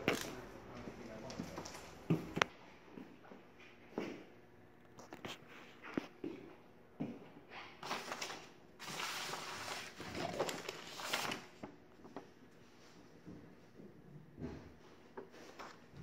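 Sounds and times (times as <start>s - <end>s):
paper rustling: 7.8s - 11.7s.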